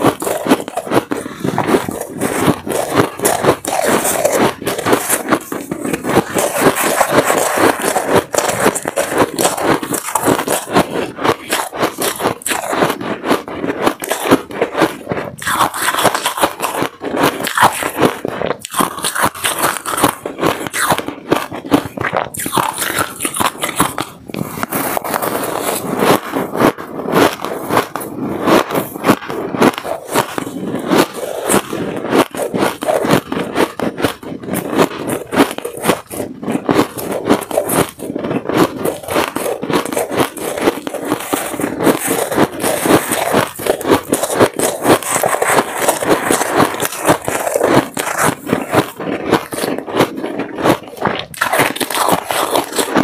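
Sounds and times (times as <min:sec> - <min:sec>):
ice being chewed crunching: 0:00.0 - 0:53.0
metal spoon scraping ice: 0:00.0 - 0:53.0.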